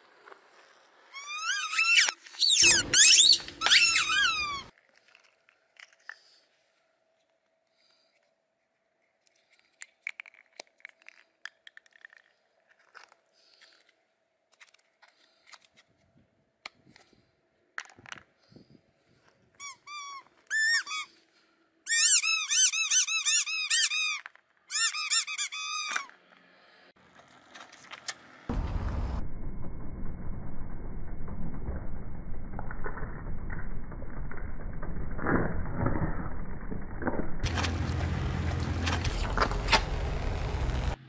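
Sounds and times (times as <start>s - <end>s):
high squeaking: 1.2s - 4.7s
car tyre rolling: 27.1s - 41.0s.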